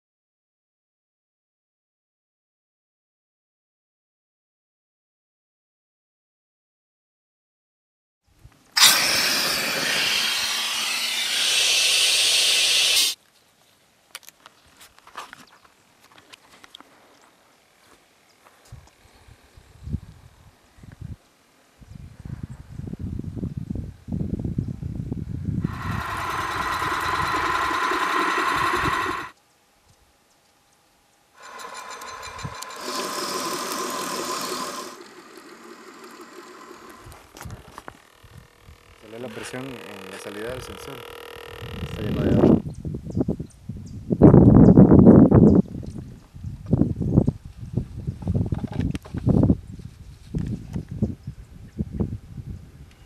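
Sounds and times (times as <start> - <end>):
gas hissing through hose: 8.8 - 13.2, 25.6 - 29.3, 31.4 - 37.3
small motor whining: 8.8 - 13.2, 25.6 - 29.4, 31.4 - 42.6
rapid ticking: 25.7 - 29.3.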